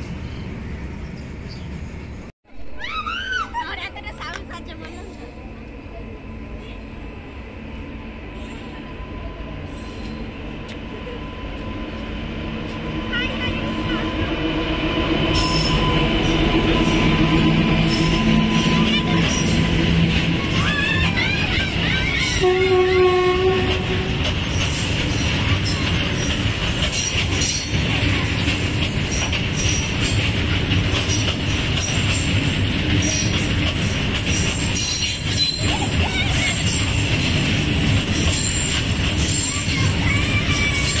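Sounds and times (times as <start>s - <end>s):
freight train rumble: 0.0s - 2.4s, 3.7s - 41.0s.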